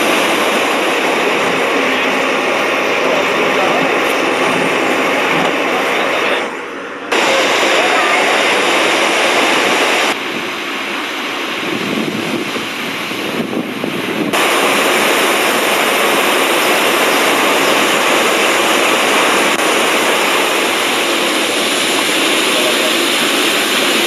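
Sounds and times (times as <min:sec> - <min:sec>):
roar of waterfall: 0:00.0 - 0:24.0.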